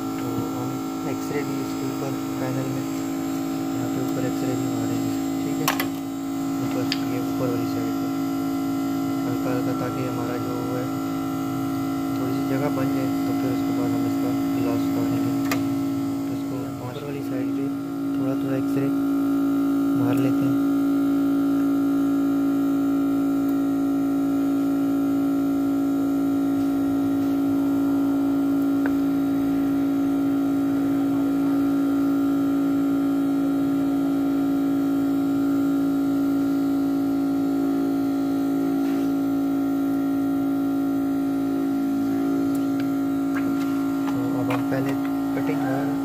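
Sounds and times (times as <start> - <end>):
machine hum with low drone: 0.0 - 46.0.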